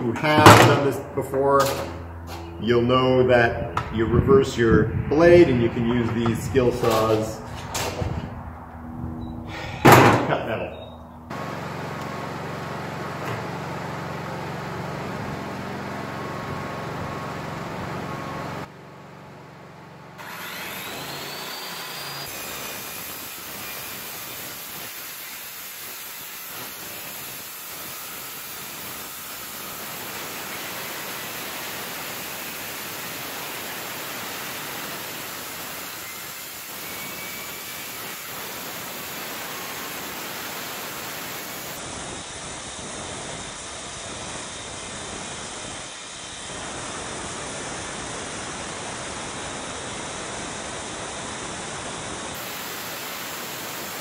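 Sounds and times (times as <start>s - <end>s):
circular saw cutting steel: 20.2s - 42.4s.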